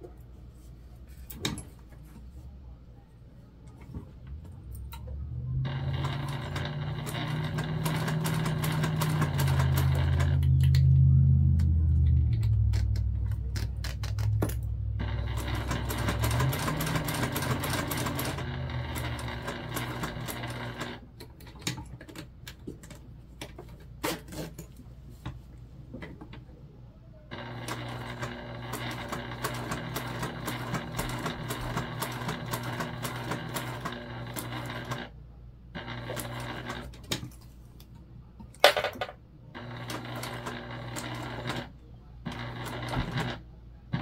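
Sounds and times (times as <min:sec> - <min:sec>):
sewing machine stitching: 0:04.9 - 0:10.8, 0:12.5 - 0:22.1, 0:27.3 - 0:35.1, 0:35.8 - 0:37.2, 0:39.6 - 0:44.0.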